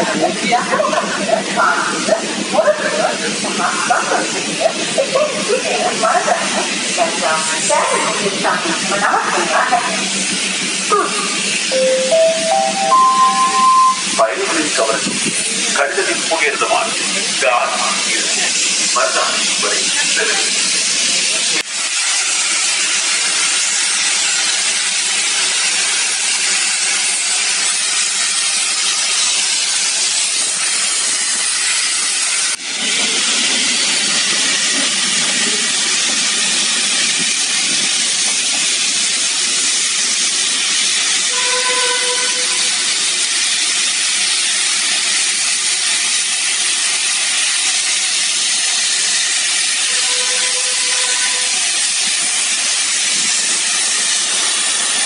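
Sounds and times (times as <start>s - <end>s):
steam locomotive hissing: 0.0s - 55.0s
faint whistle-like tones: 11.7s - 14.1s.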